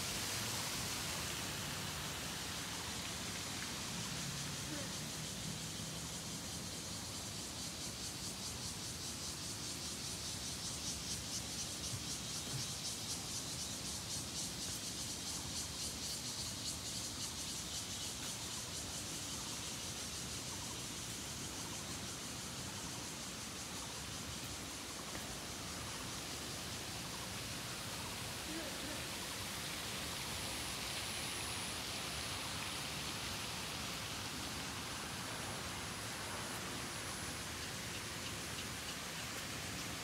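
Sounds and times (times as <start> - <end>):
cicadas buzzing: 0.0 - 40.0.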